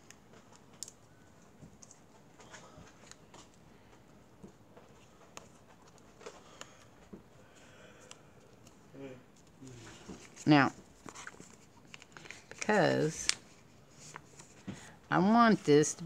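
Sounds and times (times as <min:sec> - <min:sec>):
paper rustling and folding: 0:08.5 - 0:14.9.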